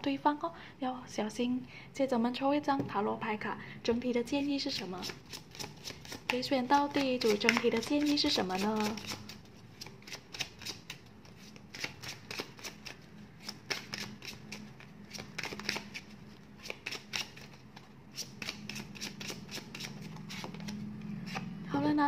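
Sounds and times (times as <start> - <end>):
cards shuffling: 4.8 - 21.6.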